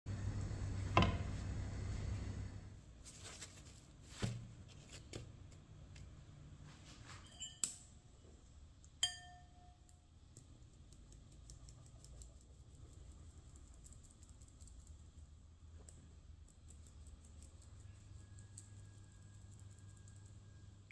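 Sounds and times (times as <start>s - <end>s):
kitchenware clinking: 7.1s - 8.0s, 9.0s - 9.8s.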